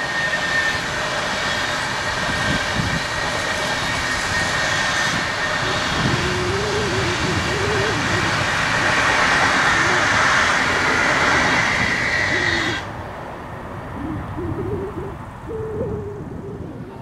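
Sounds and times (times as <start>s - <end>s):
train coaches rolling past: 0.0s - 14.0s
short wavering tones: 5.6s - 11.6s, 13.9s - 17.0s.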